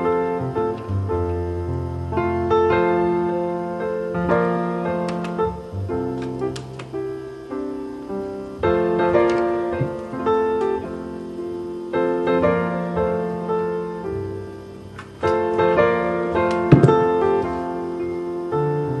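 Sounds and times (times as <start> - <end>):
gentle piano music: 0.0 - 19.0
sharp knock: 16.7 - 17.2.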